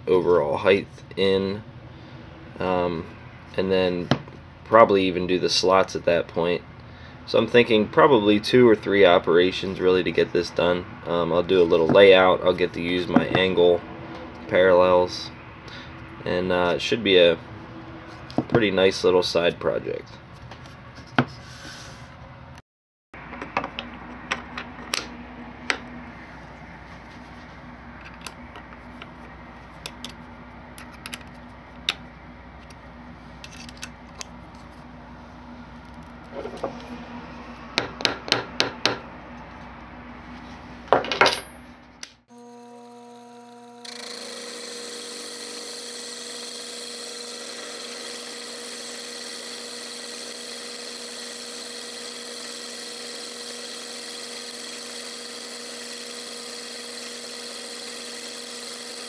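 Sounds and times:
milling machine motor whine: 0:42.3 - 0:59.0.

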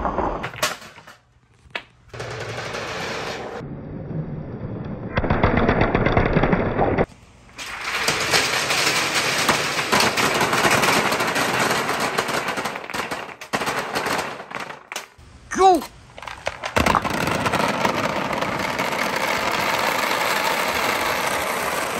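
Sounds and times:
billiard balls clattering down chute: 0:00.4 - 0:01.3, 0:02.1 - 0:03.6, 0:05.2 - 0:13.5, 0:16.1 - 0:21.9.

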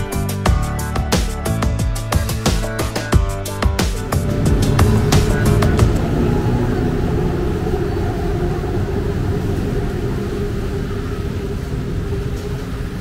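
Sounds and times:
city traffic rumble: 0:03.4 - 0:13.0.

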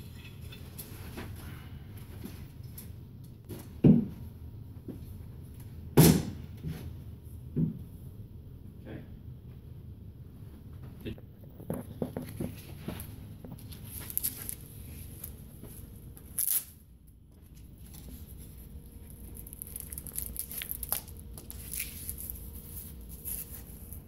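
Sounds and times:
hook-and-loop strap ripping: 0:16.4 - 0:16.7.

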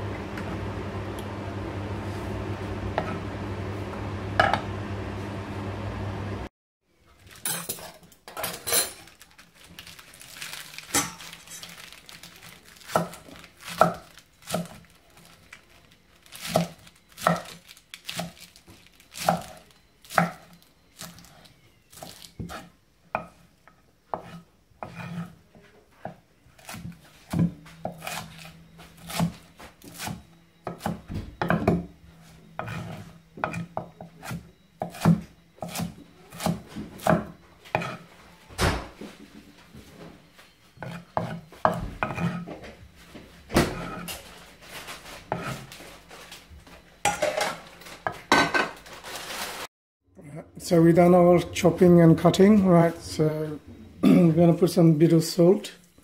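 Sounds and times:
lettuce leaves crunching: 0:09.0 - 0:20.2
knife chopping on wooden board: 0:26.0 - 0:31.9, 0:32.6 - 0:38.0, 0:40.8 - 0:42.5.

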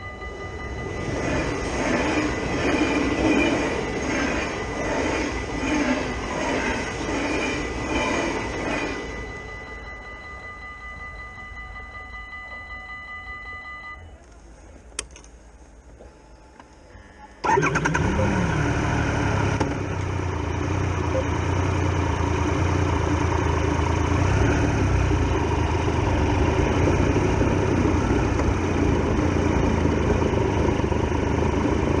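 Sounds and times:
motorcycle engine starting and running: 0:17.4 - 0:32.0.

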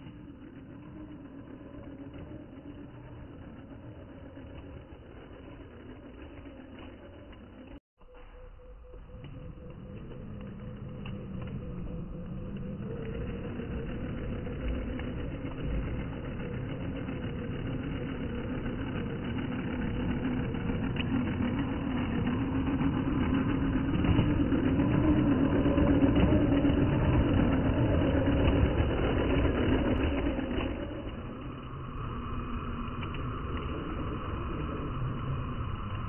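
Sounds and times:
toy truck motor whining: 0:13.1 - 0:31.4.

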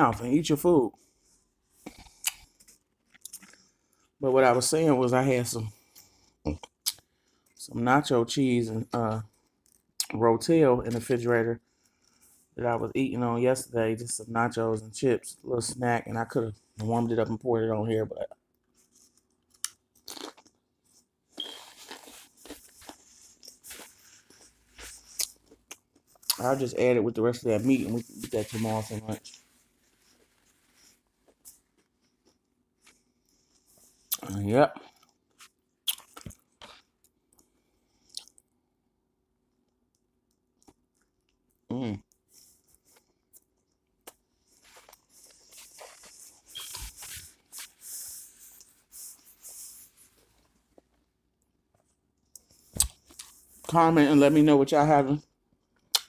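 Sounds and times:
person chewing food: 0:01.7 - 0:04.1, 0:18.6 - 0:26.4
paper napkin rustling: 0:27.4 - 0:31.0, 0:44.6 - 0:50.7.

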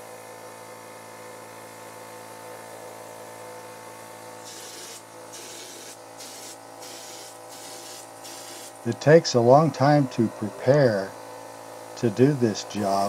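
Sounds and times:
air compressor humming: 0:00.2 - 0:13.0
spray gun hissing: 0:04.4 - 0:08.9.

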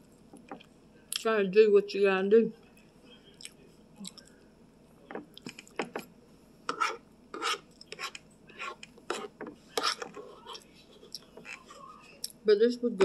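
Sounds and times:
chewing and mouth clicks: 0:03.3 - 0:04.4
spoon scraping plate: 0:06.7 - 0:10.7.

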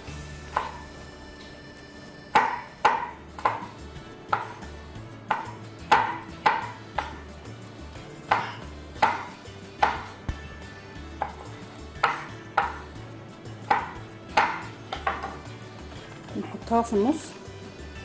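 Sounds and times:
knife knocking on cutting board: 0:13.7 - 0:15.4.

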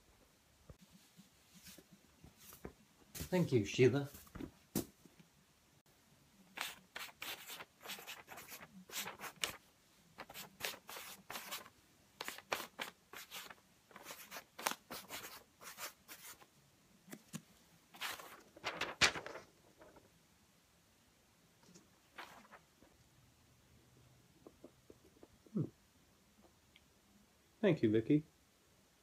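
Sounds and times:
clothing rustling and scraping: 0:00.8 - 0:05.0, 0:21.7 - 0:23.0.

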